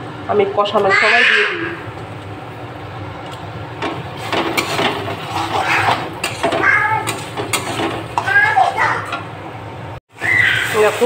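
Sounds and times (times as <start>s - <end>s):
steady low hum: 1.6s - 10.0s
metal spatula scraping a pan: 3.8s - 9.2s.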